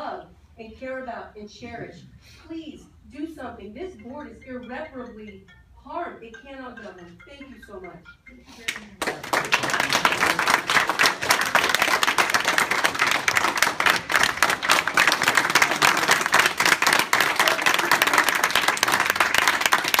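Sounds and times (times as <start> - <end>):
crowd applauding: 8.7 - 20.0.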